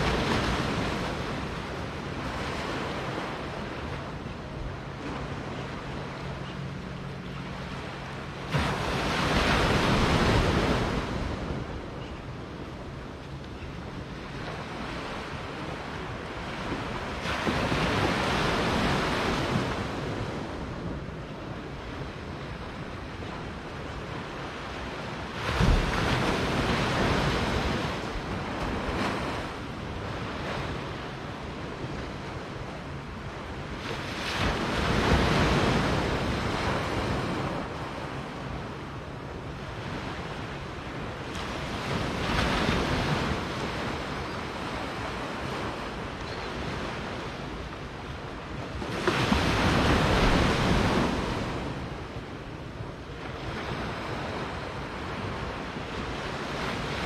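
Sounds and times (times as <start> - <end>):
small waves washing in: 0.0 - 11.9.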